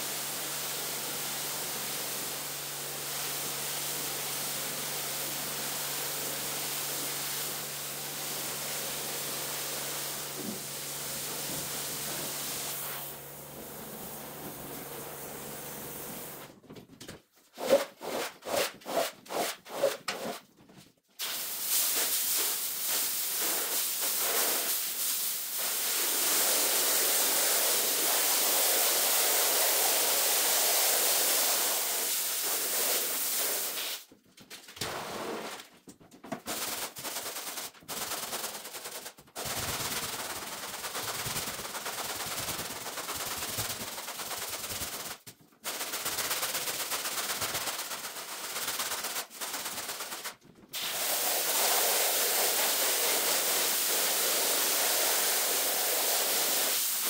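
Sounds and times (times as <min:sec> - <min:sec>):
hissing carpet scrubbing: 0:49.9 - 0:57.0.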